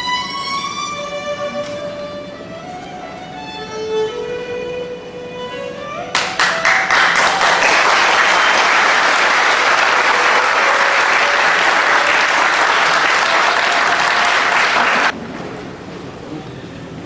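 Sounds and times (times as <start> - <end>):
audience applauding: 6.1 - 15.2.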